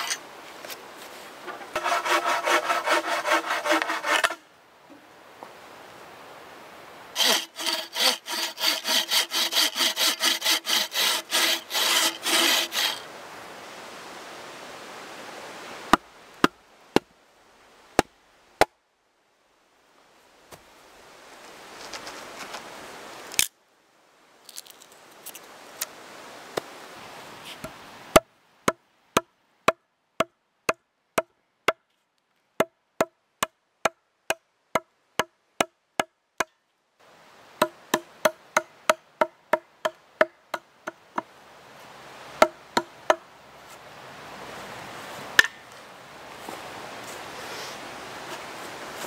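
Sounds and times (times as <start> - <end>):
blade scraping through wood: 0.0 - 0.2, 1.5 - 4.4, 7.2 - 13.0
axe chopping log: 45.4 - 45.6.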